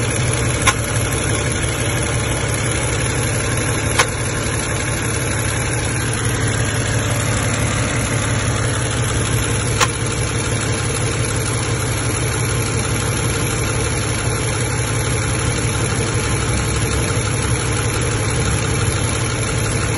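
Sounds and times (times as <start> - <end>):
car engine idling: 0.0 - 19.9
sharp click: 0.6 - 1.0, 3.8 - 4.3, 9.7 - 10.1.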